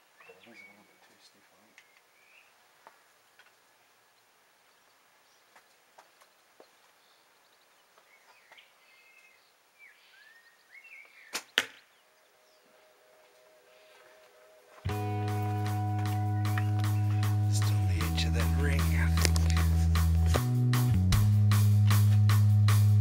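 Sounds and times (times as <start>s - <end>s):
faint bird chirps: 0.0s - 2.6s, 6.2s - 14.7s.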